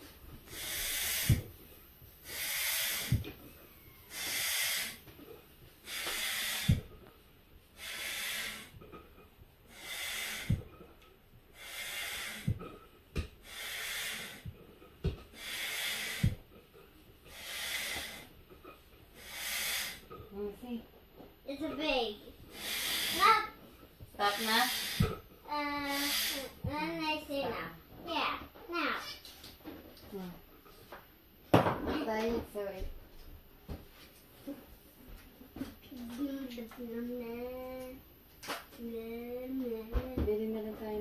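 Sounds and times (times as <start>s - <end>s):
hand pump air rush: 0.5s - 1.5s, 2.2s - 3.3s, 4.1s - 5.0s, 5.8s - 7.0s, 7.8s - 8.8s, 9.7s - 10.7s, 11.6s - 12.7s, 13.4s - 14.5s, 15.3s - 16.4s, 17.3s - 18.3s, 19.2s - 20.1s, 22.5s - 23.5s, 24.2s - 25.2s, 25.8s - 26.6s.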